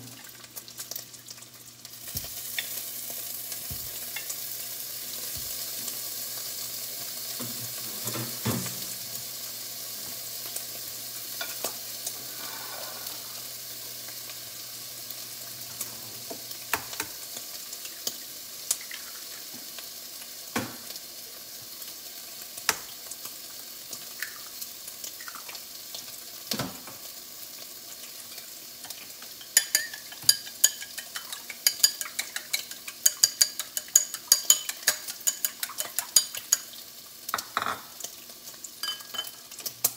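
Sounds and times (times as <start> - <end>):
food sizzling in a frying pan: 0.0 - 39.9
chopsticks beating eggs in a bowl: 29.6 - 36.7.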